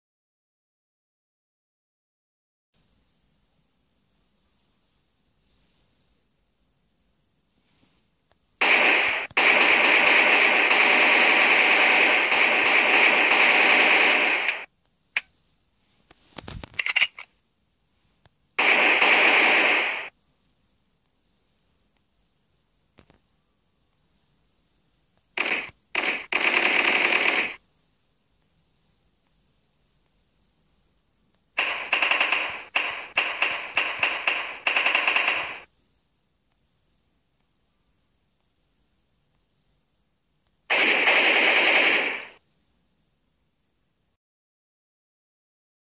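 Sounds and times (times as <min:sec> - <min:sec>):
automatic gunfire rattle: 0:08.6 - 0:14.7, 0:16.6 - 0:17.3, 0:25.4 - 0:27.6, 0:31.6 - 0:35.7, 0:40.7 - 0:42.4.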